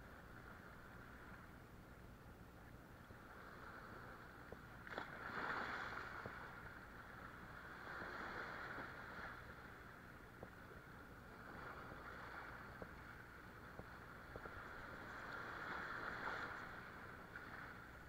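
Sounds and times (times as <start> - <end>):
faint ticks: 4.3 - 5.1, 10.2 - 11.9, 12.5 - 15.3
waves washing over rocks: 7.6 - 9.6, 11.3 - 18.0.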